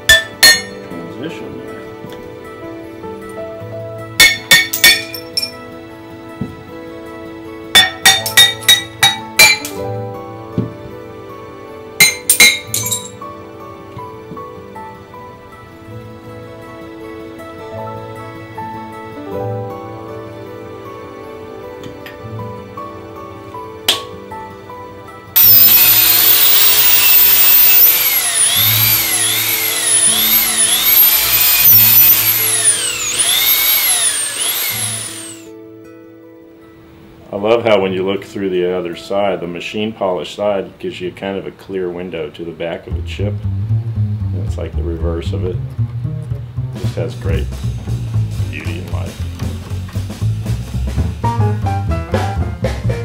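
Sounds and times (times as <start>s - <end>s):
hammer clinking on glass: 0.1s - 0.8s, 4.2s - 5.6s, 7.8s - 9.8s, 12.0s - 13.2s
abrasive disc grinding glass: 25.4s - 35.5s.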